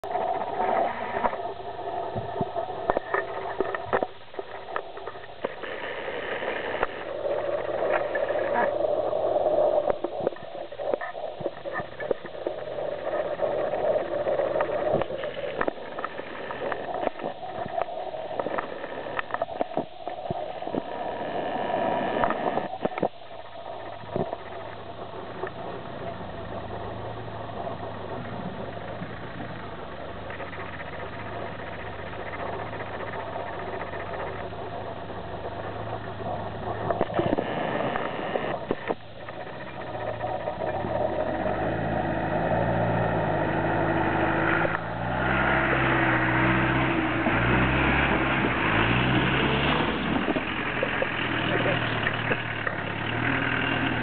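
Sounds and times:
vehicle engine under load: 20.7 - 54.0.

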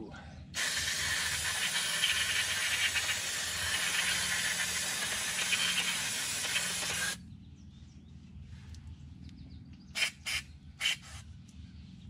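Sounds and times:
pressurized spray hissing: 0.6 - 7.2.

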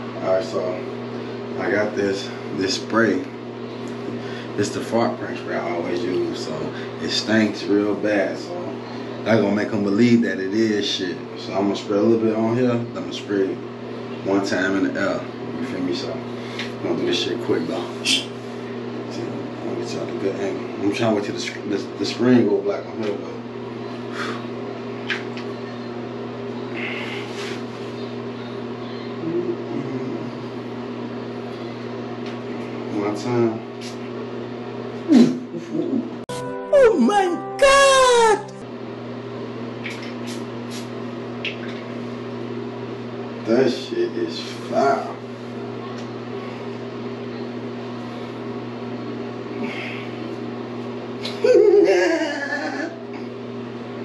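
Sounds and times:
low mechanical hum: 0.0 - 54.0
man exclaiming in disgust: 36.7 - 38.6.

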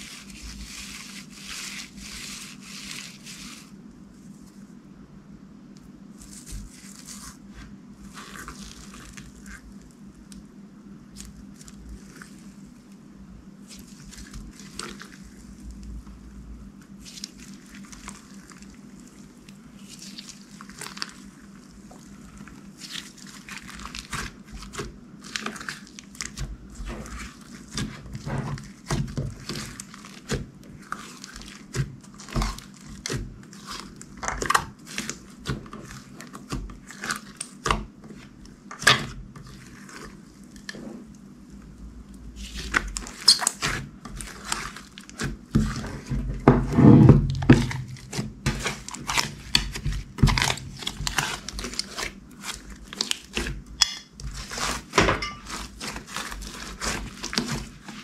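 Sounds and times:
slime squishing: 0.0 - 4.7, 6.0 - 58.0.

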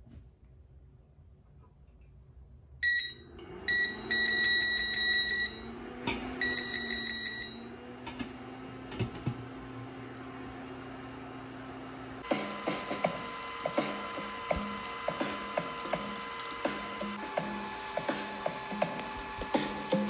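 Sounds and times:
cooktop beeping: 2.8 - 9.4
cooktop humming: 2.8 - 20.0.

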